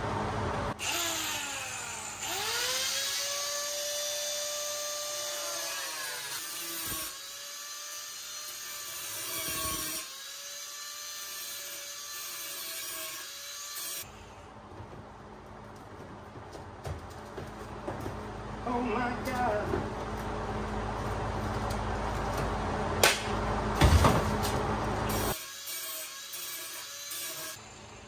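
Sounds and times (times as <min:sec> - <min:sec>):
angle grinder cutting metal: 0:00.8 - 0:14.1, 0:25.0 - 0:27.6.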